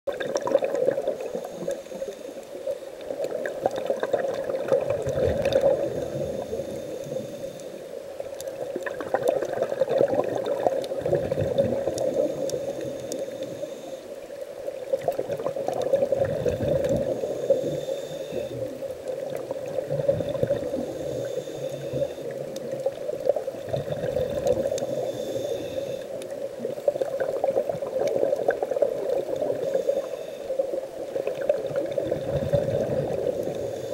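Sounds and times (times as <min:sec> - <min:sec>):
bubbles gurgling underwater: 0:00.1 - 0:01.4, 0:03.0 - 0:06.7, 0:08.5 - 0:13.1, 0:14.8 - 0:17.7, 0:18.5 - 0:25.1, 0:26.2 - 0:29.8, 0:31.0 - 0:33.7
diver breathing through regulator: 0:01.0 - 0:03.0, 0:05.5 - 0:07.9, 0:11.9 - 0:14.2, 0:16.3 - 0:18.9, 0:20.0 - 0:22.6, 0:23.8 - 0:26.3, 0:29.3 - 0:30.8, 0:32.5 - 0:33.9.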